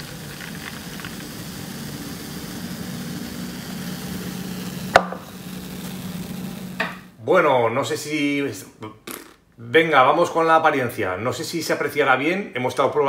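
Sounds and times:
low mechanical hum: 0:00.0 - 0:07.3.

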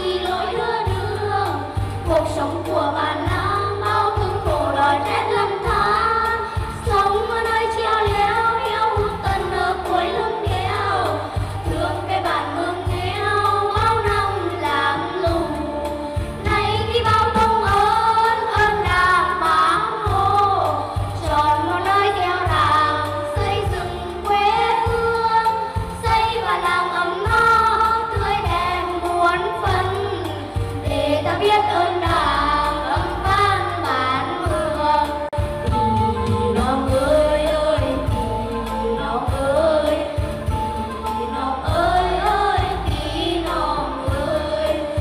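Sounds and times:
instrumental accompaniment: 0:00.0 - 0:45.0
voices singing folk song: 0:00.0 - 0:45.0.

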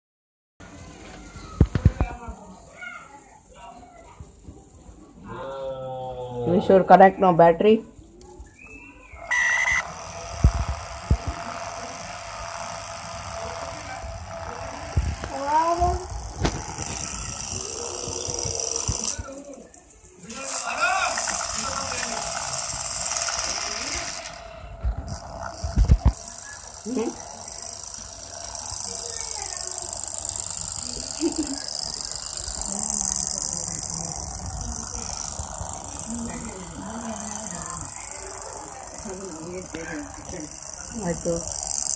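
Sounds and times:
small motors whirring: 0:08.2 - 0:41.9
loud high tone: 0:09.3 - 0:10.0.

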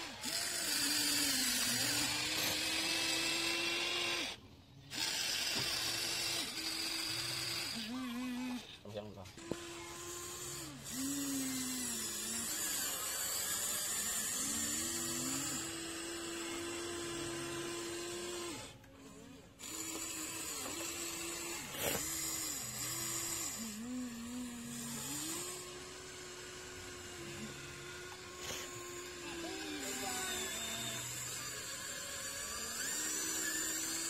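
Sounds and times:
electric motors whining: 0:00.0 - 0:34.0.

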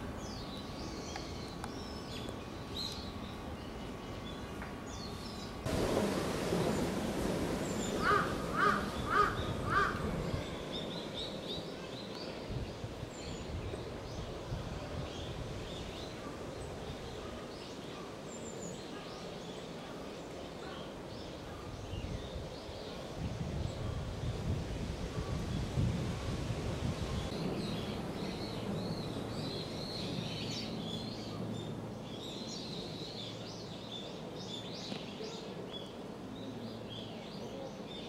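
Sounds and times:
bird calling: 0:07.7 - 0:11.2.

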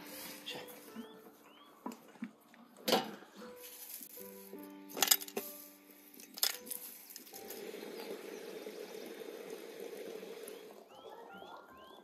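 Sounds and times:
hot water pouring into glass teapot: 0:07.2 - 0:11.2.

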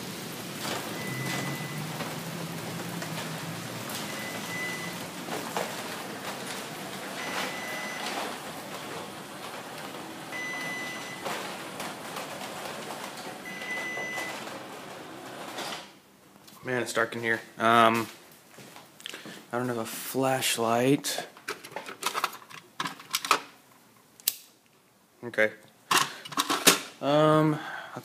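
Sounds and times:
steady rain: 0:00.0 - 0:15.7.

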